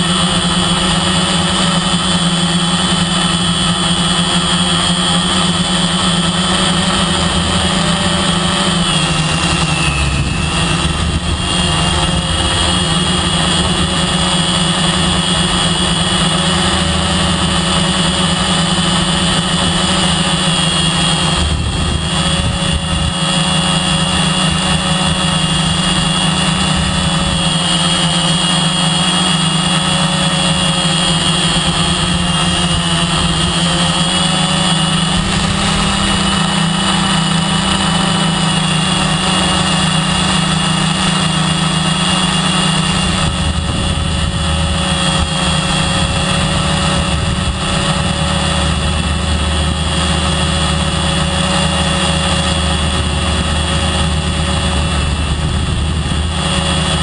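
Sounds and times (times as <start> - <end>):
drone propellers whining: 0.0 - 57.0.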